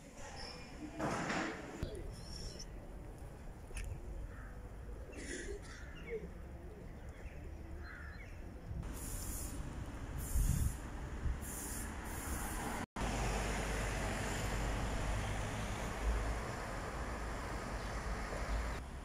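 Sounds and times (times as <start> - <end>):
short hissing swells: 8.8 - 12.9
street rumbling hiss: 8.8 - 19.0.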